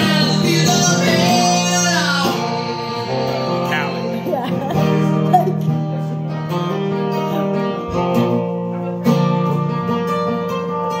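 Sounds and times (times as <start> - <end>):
acoustic guitar strumming: 0.0 - 11.0.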